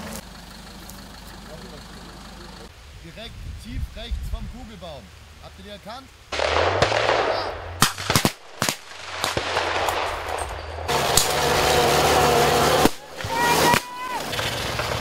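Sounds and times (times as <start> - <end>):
truck engine running: 0.0 - 2.8, 9.2 - 15.0
blank gunshots: 6.3 - 10.5.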